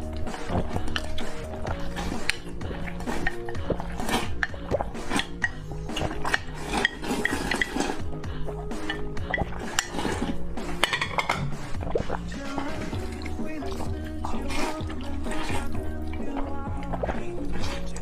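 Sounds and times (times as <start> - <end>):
background music: 0.0 - 18.0
noodles slurped: 0.0 - 18.0.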